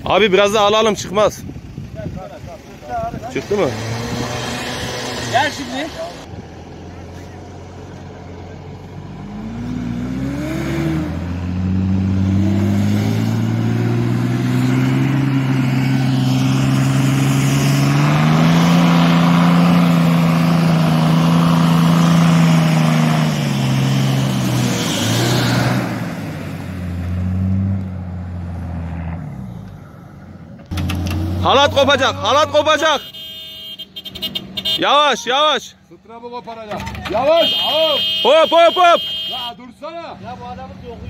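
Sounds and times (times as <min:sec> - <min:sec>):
engine revving hard: 0:03.3 - 0:06.3, 0:09.2 - 0:27.8.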